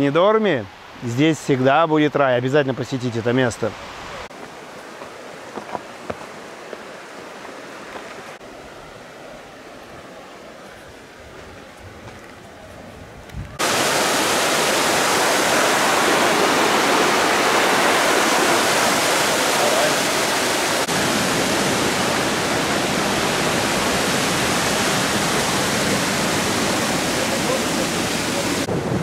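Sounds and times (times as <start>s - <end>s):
waterfall rushing into a pool: 13.6s - 29.0s.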